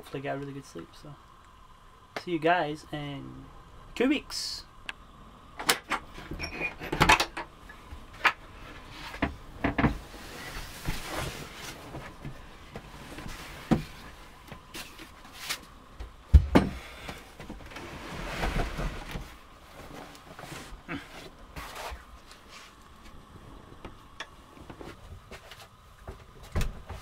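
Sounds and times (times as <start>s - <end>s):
bedding rustling: 8.6s - 23.1s
heavy thump: 16.3s - 16.8s.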